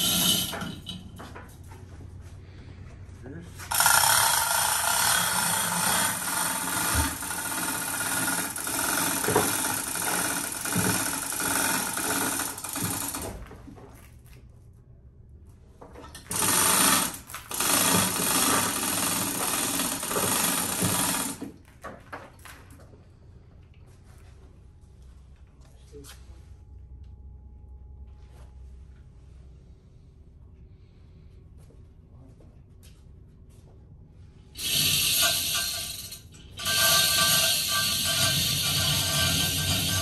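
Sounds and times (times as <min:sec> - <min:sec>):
chain hoist metallic clatter: 0:00.0 - 0:01.2, 0:04.6 - 0:13.3, 0:34.6 - 0:40.0.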